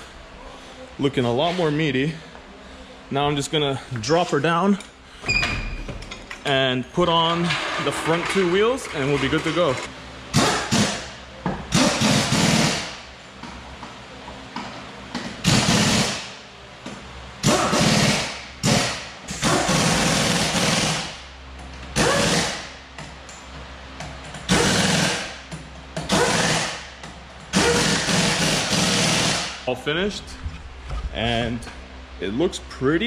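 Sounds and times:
impact wrench rattling bursts: 0:11.7 - 0:13.0, 0:15.4 - 0:16.4, 0:17.4 - 0:21.2, 0:21.9 - 0:22.8, 0:24.2 - 0:29.6.

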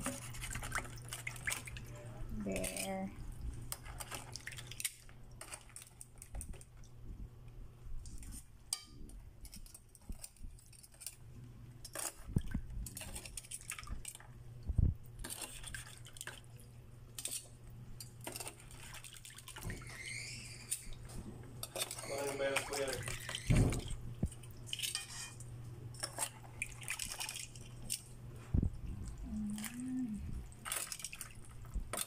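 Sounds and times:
water sloshing in basin: 0:00.0 - 0:07.0, 0:11.9 - 0:16.7, 0:18.2 - 0:32.0.

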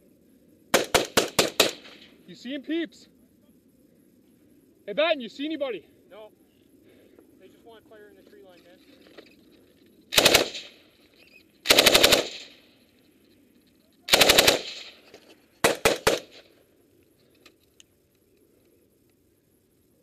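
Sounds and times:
machine gun firing bursts: 0:00.7 - 0:02.1, 0:10.1 - 0:10.8, 0:11.6 - 0:12.6, 0:14.1 - 0:15.0, 0:15.6 - 0:16.5
single gunshots: 0:00.7 - 0:02.1, 0:10.1 - 0:10.8, 0:11.7 - 0:12.6, 0:14.1 - 0:15.0, 0:15.6 - 0:16.5.

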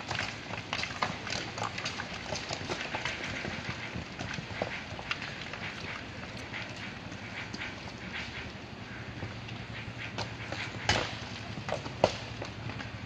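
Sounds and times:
rocks clattering down a slope: 0:00.0 - 0:06.9, 0:10.2 - 0:13.0.

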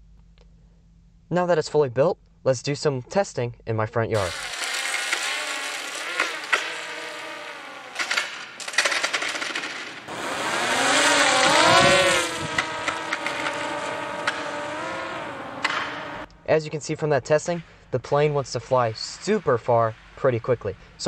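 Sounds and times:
electric motor and propeller whining: 0:04.2 - 0:16.3
crackly clicks: 0:04.3 - 0:10.1, 0:12.5 - 0:14.6.

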